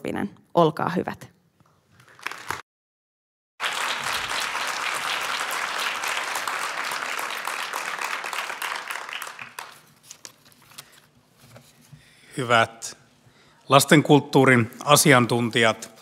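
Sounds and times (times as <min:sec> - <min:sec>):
audience applauding: 0:02.0 - 0:02.6, 0:03.6 - 0:10.0.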